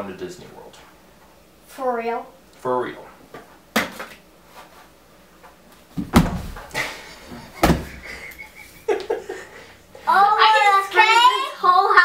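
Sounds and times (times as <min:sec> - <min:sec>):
heavy thuds on wooden floor: 0:05.9 - 0:08.1.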